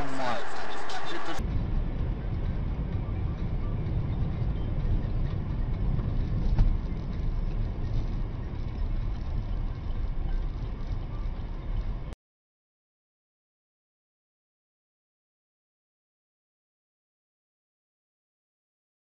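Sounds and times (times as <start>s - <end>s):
car engine rumble: 0.0s - 12.2s
road noise: 0.0s - 12.2s.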